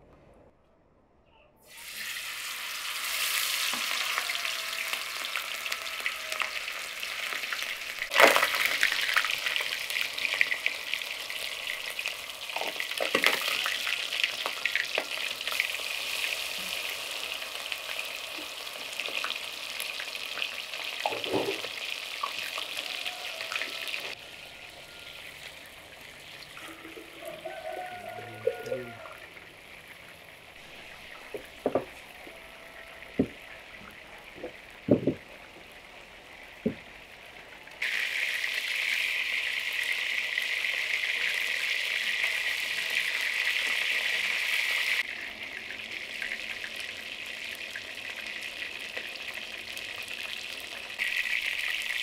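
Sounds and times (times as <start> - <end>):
fish sizzling in hot oil: 1.6 - 28.2, 37.8 - 52.0.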